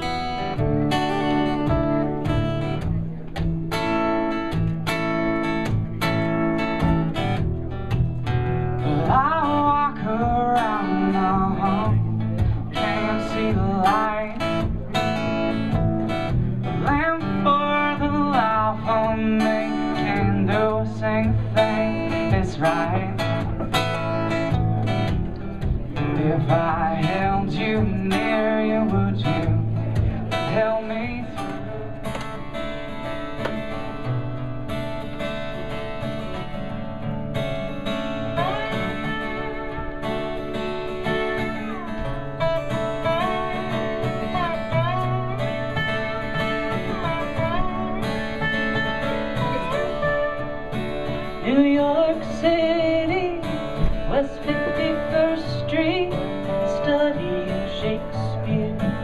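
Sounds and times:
slide guitar gliding notes: 0:00.0 - 0:59.0
strummed acoustic guitar: 0:00.0 - 0:59.0
man singing: 0:08.8 - 0:24.7, 0:26.0 - 0:31.9, 0:41.1 - 0:59.0.

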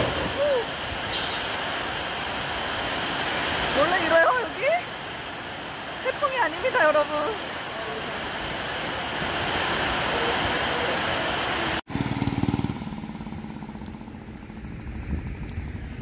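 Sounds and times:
heavy rain downpour: 0:00.0 - 0:11.9.

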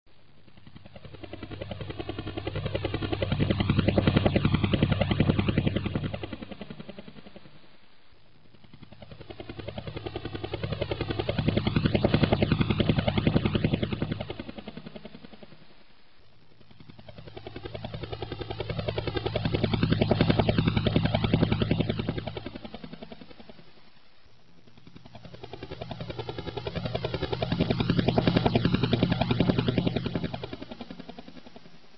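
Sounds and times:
helicopter rotor beating: 0:00.3 - 0:07.8, 0:08.4 - 0:15.8, 0:16.5 - 0:31.9.

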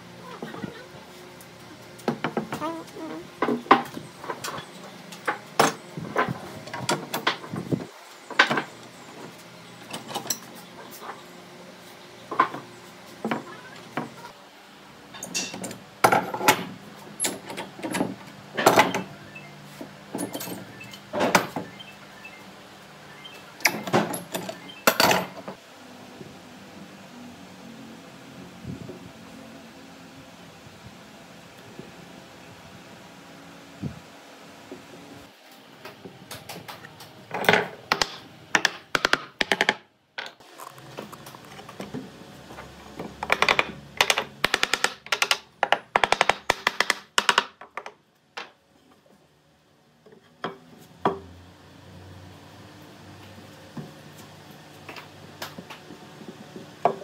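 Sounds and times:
wooden parts and tools knocking: 0:37.3 - 0:40.4, 0:42.9 - 0:48.6.

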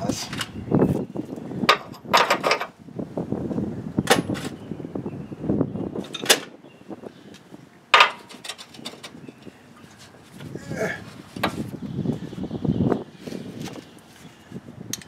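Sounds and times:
rattling and handling noise: 0:01.7 - 0:02.8, 0:07.9 - 0:09.2
hand tools clanking on metal: 0:07.9 - 0:09.2.

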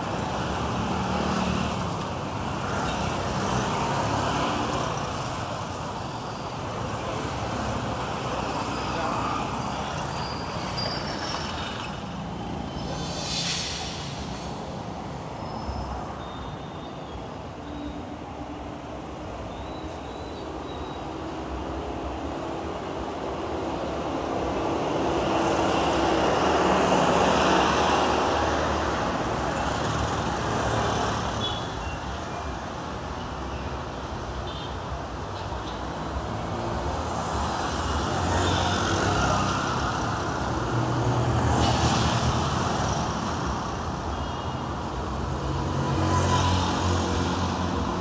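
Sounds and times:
tyres on the road: 0:00.0 - 0:48.0
short hiss: 0:12.7 - 0:14.7.

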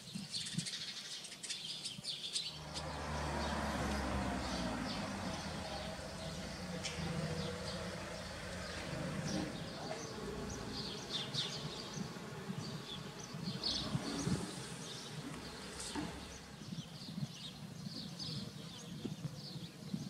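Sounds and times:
small birds chirping: 0:00.0 - 0:20.0
low steady rumble: 0:02.5 - 0:11.0.

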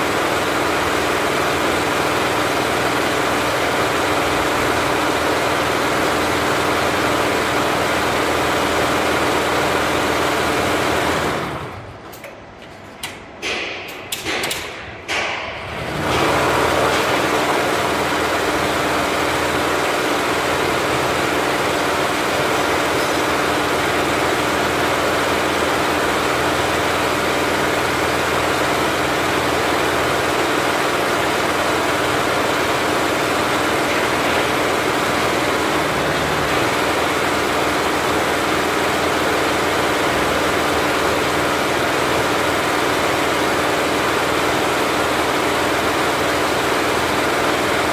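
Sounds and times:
embroidery machine stitching rattle: 0:00.0 - 0:11.8, 0:15.7 - 0:47.9.

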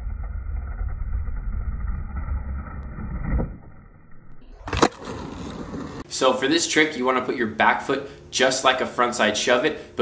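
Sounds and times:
skateboard wheels rolling on asphalt: 0:00.0 - 0:06.0
skateboard tail thud: 0:04.6 - 0:06.0.

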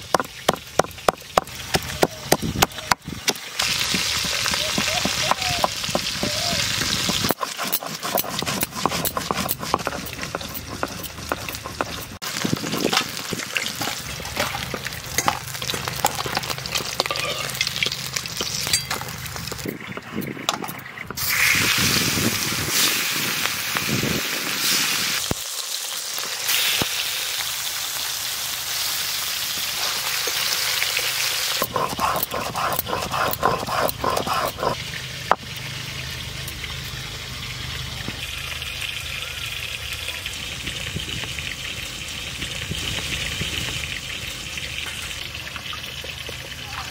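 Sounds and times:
stone roller grinding on stone slab: 0:00.1 - 0:20.8, 0:31.6 - 0:35.4
fish sizzling in hot oil: 0:03.1 - 0:20.0, 0:21.2 - 0:31.8, 0:34.8 - 0:46.9.

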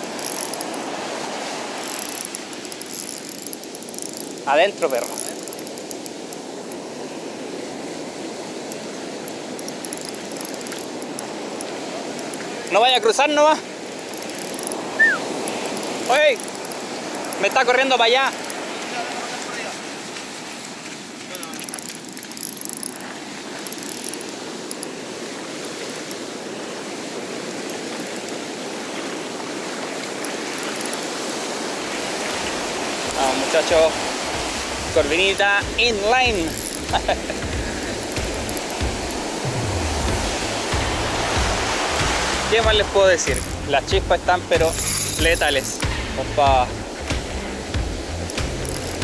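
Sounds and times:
fishing reel clicking: 0:00.0 - 0:00.8, 0:01.8 - 0:06.8, 0:08.7 - 0:12.4, 0:13.9 - 0:17.5, 0:21.5 - 0:25.0, 0:30.2 - 0:31.1, 0:36.3 - 0:37.1, 0:37.7 - 0:39.2, 0:43.2 - 0:43.7, 0:48.1 - 0:49.0
surf breaking on beach: 0:00.0 - 0:49.0.

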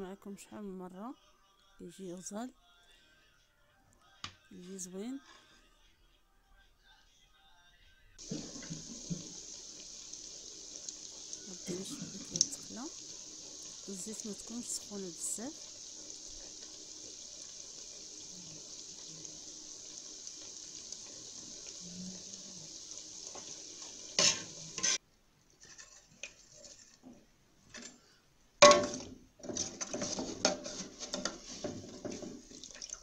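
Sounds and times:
fritters sizzling in hot oil: 0:08.2 - 0:25.0, 0:28.6 - 0:33.0.

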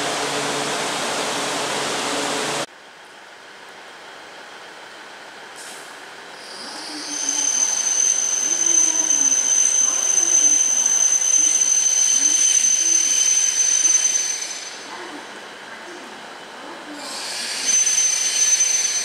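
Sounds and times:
high-pitched train whine: 0:00.0 - 0:02.7, 0:06.4 - 0:19.0.

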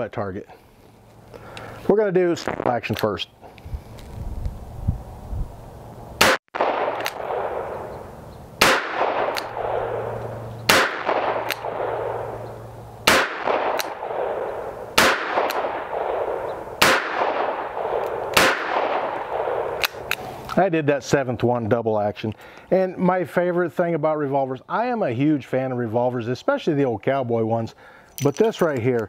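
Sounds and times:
revolver gunshots with echo: 0:06.2 - 0:20.1.

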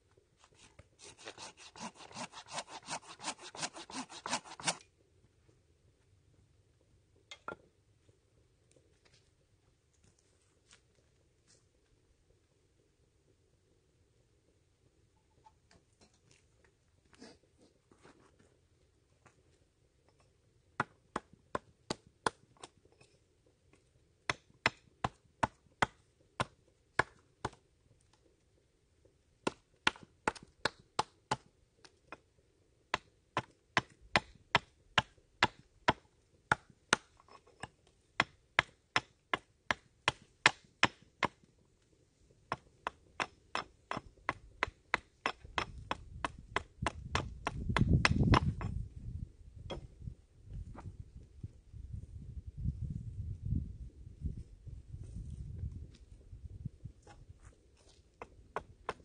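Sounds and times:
hatchet chopping wood on a table: 0:24.3 - 0:27.6, 0:42.5 - 0:48.8.

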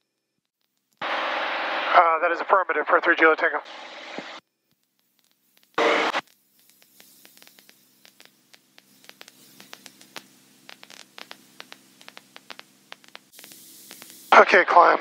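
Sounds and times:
crackles and clicks: 0:00.0 - 0:01.7, 0:02.4 - 0:14.9
faint hum: 0:01.0 - 0:04.4, 0:05.8 - 0:15.0
loud burst of static: 0:01.0 - 0:04.4, 0:05.8 - 0:06.2, 0:08.9 - 0:15.0.

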